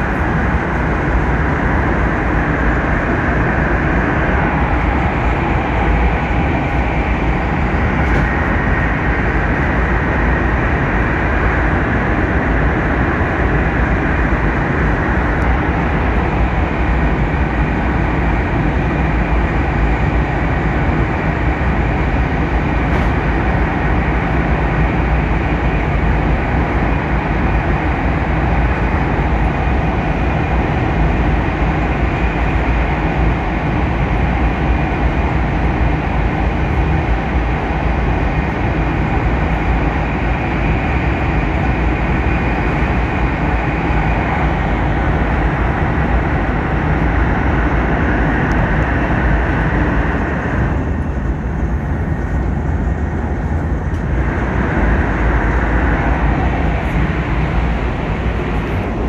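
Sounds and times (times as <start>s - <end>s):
train cabin rumble and rush: 0.0s - 59.0s.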